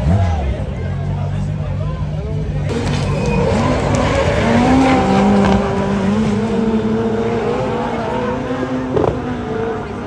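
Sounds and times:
race cars accelerating past: 2.7s - 10.0s.

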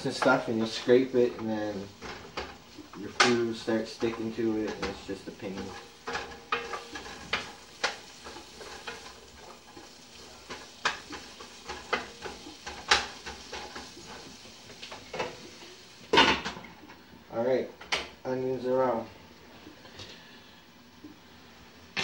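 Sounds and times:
onions sizzling in a frying pan: 0.0s - 16.9s.

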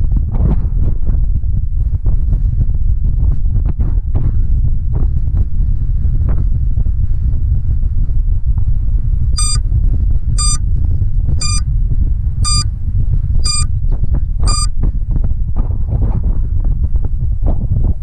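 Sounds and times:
wind buffeting microphone: 0.0s - 18.0s
short high beeps: 9.4s - 9.6s, 10.4s - 10.6s, 11.4s - 11.6s, 12.4s - 12.6s, 13.4s - 13.7s, 14.4s - 14.7s.

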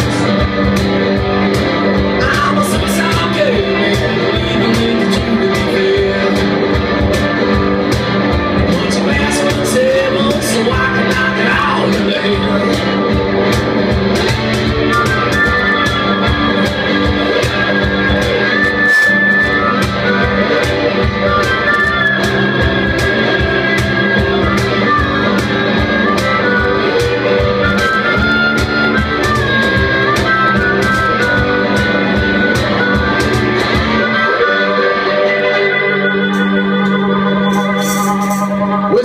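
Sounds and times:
steady drum beat: 0.0s - 35.6s, 36.2s - 39.0s
electric lead guitar: 0.0s - 39.0s.

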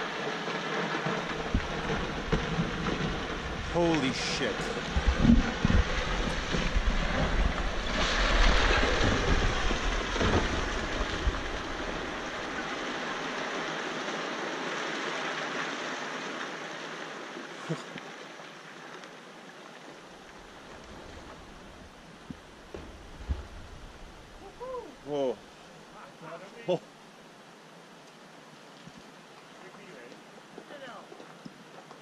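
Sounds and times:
falling rock rumble: 1.0s - 13.2s, 22.6s - 24.5s.

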